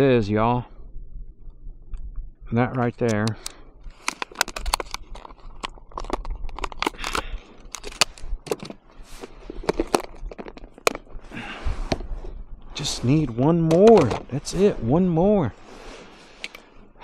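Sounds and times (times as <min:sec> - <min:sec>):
low rumble: 0:00.2 - 0:02.7
sharp clicks and crunching crackles: 0:01.4 - 0:14.8.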